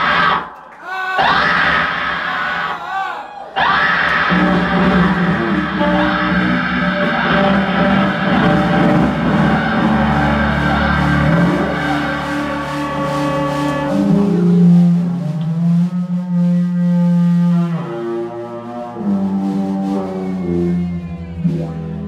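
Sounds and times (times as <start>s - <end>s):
rock band with distorted guitars: 3.6s - 15.4s.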